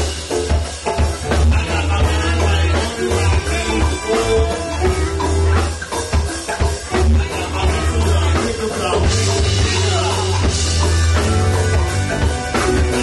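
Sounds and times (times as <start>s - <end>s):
drum kit: 0.0s - 13.0s
electric guitar: 0.0s - 13.0s
heavy bass line: 0.0s - 13.0s
person singing: 1.2s - 11.9s.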